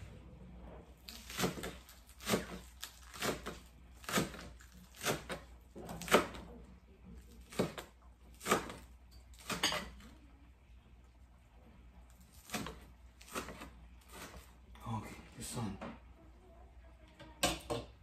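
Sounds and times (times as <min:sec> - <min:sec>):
knife chopping on plastic board: 0:01.2 - 0:06.4, 0:07.4 - 0:09.9, 0:12.3 - 0:14.4.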